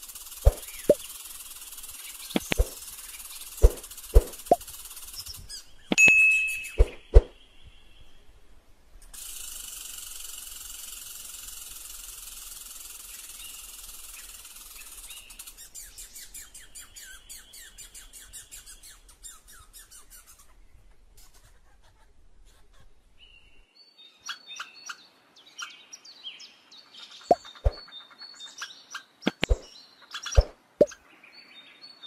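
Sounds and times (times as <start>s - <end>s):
squirrel chirping: 0.1s - 6.0s.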